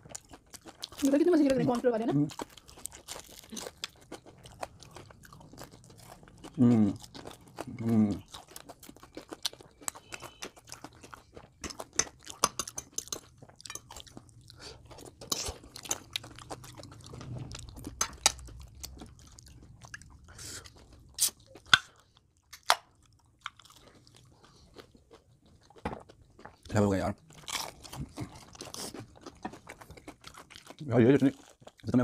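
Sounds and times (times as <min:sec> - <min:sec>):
crunching fried chicken: 0:02.3 - 0:32.0.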